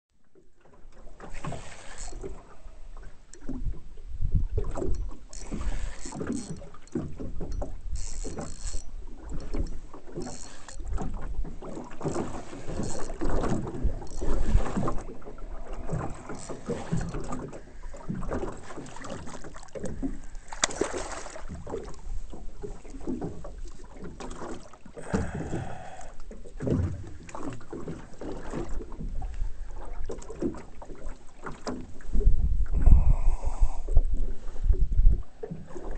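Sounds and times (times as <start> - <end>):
water lapping against boat hull: 0.1 - 35.9
wind buffeting microphone: 3.4 - 18.4, 32.0 - 35.4.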